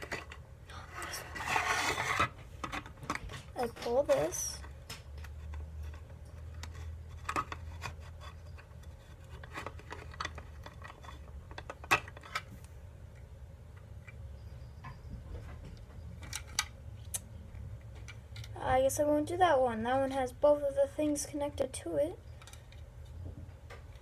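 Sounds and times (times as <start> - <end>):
plastic toy clicks and scrapes: 0.0 - 12.5
low steady hum: 0.0 - 24.0.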